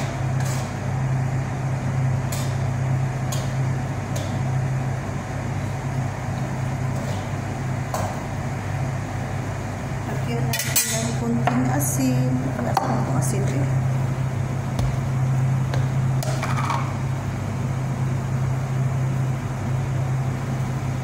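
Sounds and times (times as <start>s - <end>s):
steady low hum: 0.0s - 21.0s
metal spoon scraping pan: 0.4s - 0.8s.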